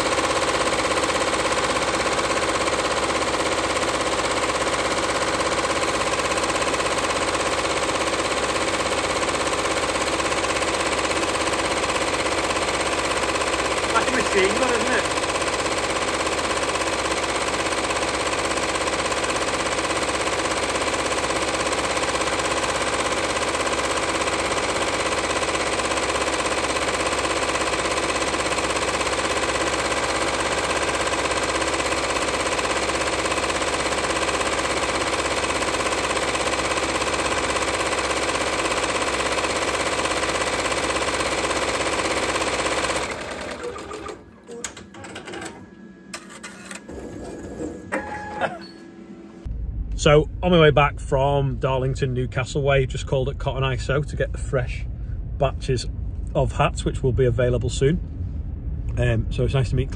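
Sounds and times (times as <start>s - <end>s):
embroidery machine stitching: 0.0s - 45.6s.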